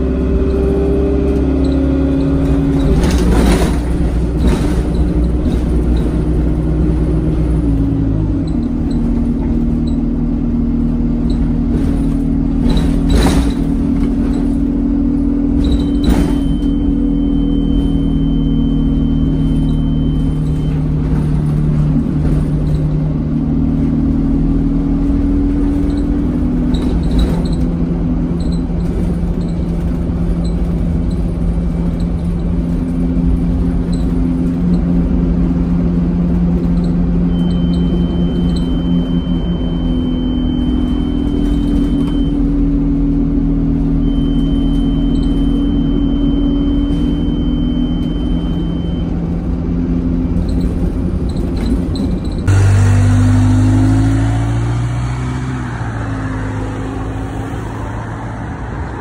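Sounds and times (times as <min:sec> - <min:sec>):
bus accelerating from stop: 0:00.0 - 0:59.0
bus diesel engine: 0:00.0 - 0:59.0.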